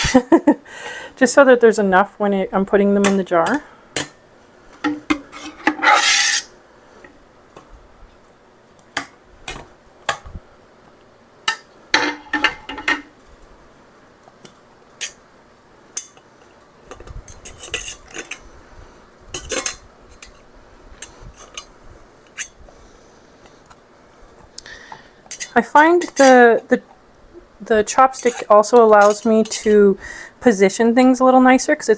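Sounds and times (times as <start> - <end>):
utensils clinking on metal pot: 19.4 - 20.4, 28.1 - 29.7.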